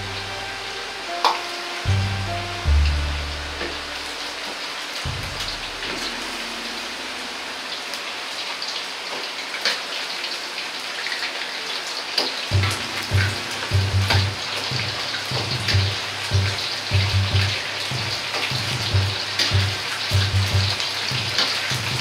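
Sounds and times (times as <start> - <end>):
chicken deep-frying in oil: 0.0 - 22.0
low thumps: 5.0 - 7.6, 12.5 - 22.0.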